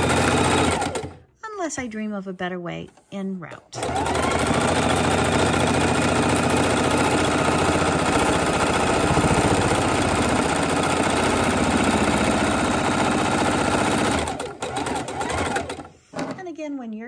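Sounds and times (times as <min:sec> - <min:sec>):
sewing machine stitching fast: 0:00.0 - 0:01.2, 0:03.8 - 0:16.0.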